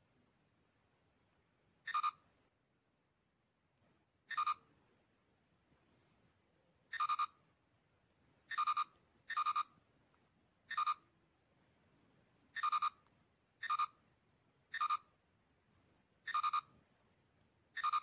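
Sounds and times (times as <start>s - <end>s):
computer interface chirping beeps: 8.5s - 9.7s, 12.6s - 13.0s, 13.6s - 14.0s, 16.3s - 16.7s, 17.8s - 18.0s.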